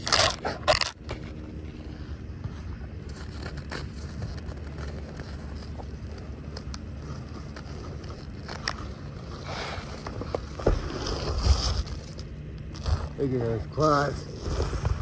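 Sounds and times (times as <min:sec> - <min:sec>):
dog moving on crusted snow: 0:02.5 - 0:13.5
wind rumble on microphone: 0:14.2 - 0:15.0.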